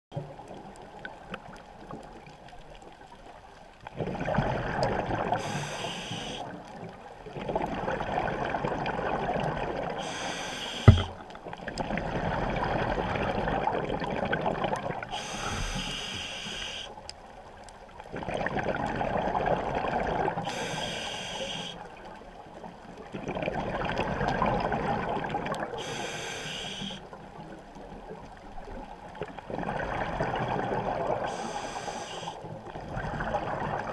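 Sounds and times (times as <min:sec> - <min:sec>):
exhaled bubbles rushing: 0:03.9 - 0:05.5, 0:23.2 - 0:25.8, 0:29.5 - 0:31.3, 0:32.7 - 0:33.9
regulator breathing hiss: 0:05.4 - 0:06.4, 0:10.0 - 0:11.1, 0:15.1 - 0:16.9, 0:20.5 - 0:21.8, 0:25.8 - 0:27.0, 0:31.3 - 0:32.4
sharp knock: 0:10.8 - 0:11.2.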